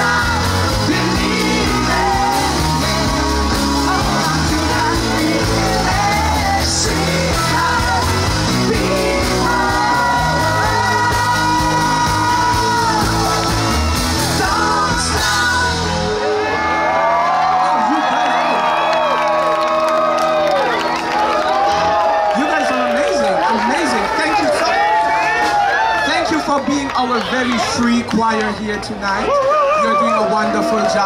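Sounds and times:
person singing: 0:00.0 - 0:16.8
drums: 0:00.0 - 0:27.8.

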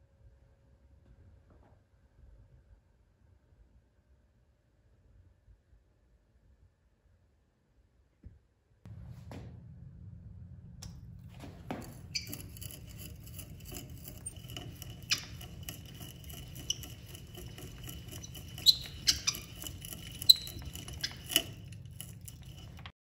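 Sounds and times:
steady low hum: 0:08.9 - 0:22.9
creaking squeaks: 0:11.3 - 0:23.0.

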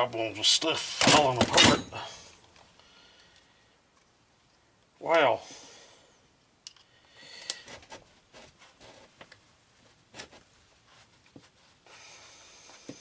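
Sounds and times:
soft steady hiss: 0:00.0 - 0:13.0
small parts and tools clicking: 0:06.6 - 0:07.7.

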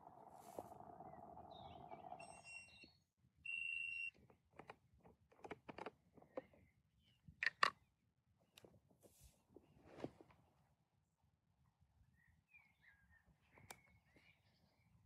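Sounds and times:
espresso maker hum: 0:00.0 - 0:02.8.

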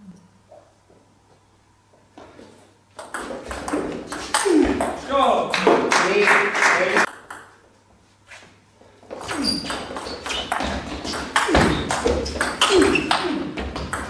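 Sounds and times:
ping pong ball ticking: 0:07.1 - 0:07.6
shoe squeaks: 0:09.2 - 0:13.6.

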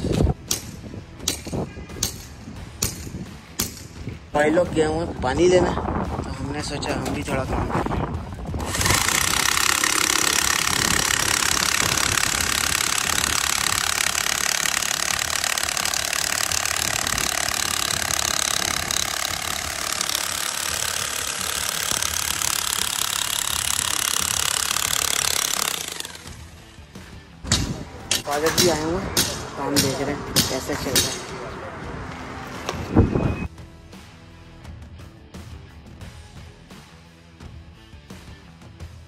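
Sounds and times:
demolition hammer on concrete: 0:00.0 - 0:04.0, 0:08.6 - 0:26.4, 0:27.4 - 0:31.5.

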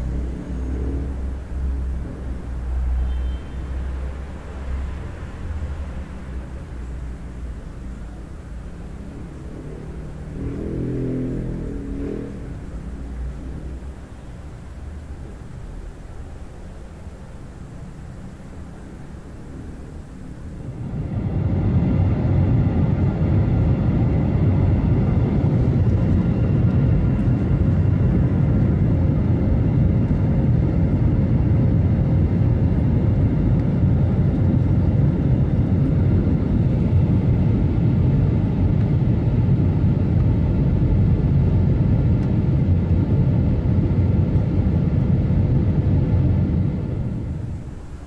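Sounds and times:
jet engines rumbling: 0:00.0 - 0:48.0
rushing air: 0:04.0 - 0:29.9, 0:43.9 - 0:48.0.

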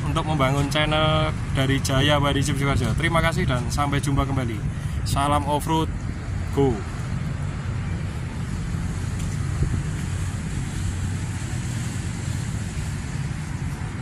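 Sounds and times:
diesel engine rumbling: 0:00.0 - 0:14.0.

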